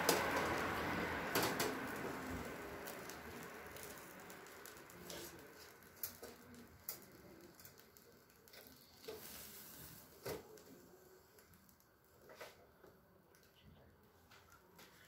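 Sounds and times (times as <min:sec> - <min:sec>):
fish sizzling on grill: 0:00.0 - 0:11.8
pops and crackles: 0:00.0 - 0:12.3.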